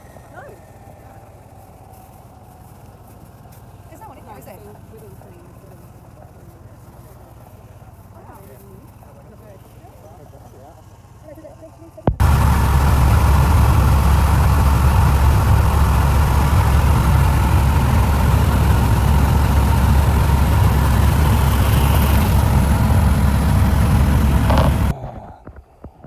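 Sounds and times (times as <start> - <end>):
faint steady whine: 12.1 - 24.9
helicopter engine and rotor drone: 12.2 - 24.9.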